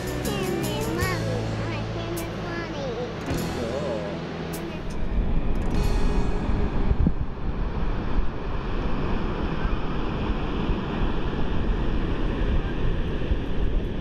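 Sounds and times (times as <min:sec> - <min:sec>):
ocean surf washing: 0:00.0 - 0:14.0
wind buffeting microphone: 0:04.8 - 0:14.0.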